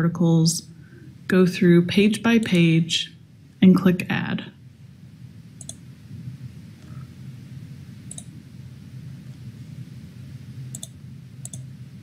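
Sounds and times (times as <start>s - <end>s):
steady low hum: 0.0s - 12.0s
computer mouse clicks: 5.6s - 5.8s, 8.1s - 8.3s, 10.7s - 11.7s.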